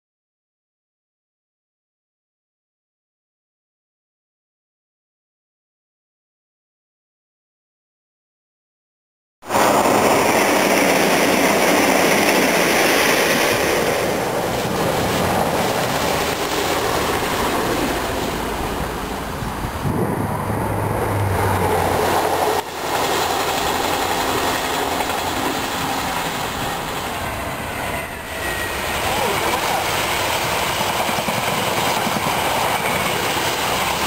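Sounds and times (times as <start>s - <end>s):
train rushing past: 9.4s - 34.0s
diesel train engine rumble: 9.5s - 34.0s.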